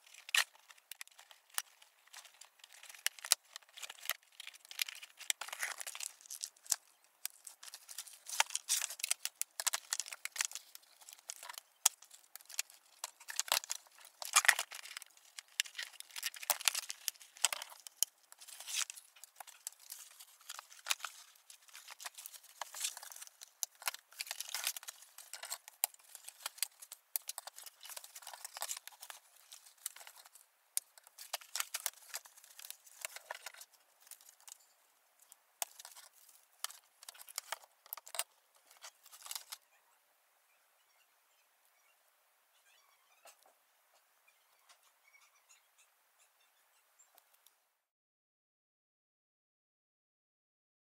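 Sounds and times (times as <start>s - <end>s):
packaging crinkling and rustling: 0.0s - 34.7s, 35.6s - 39.6s.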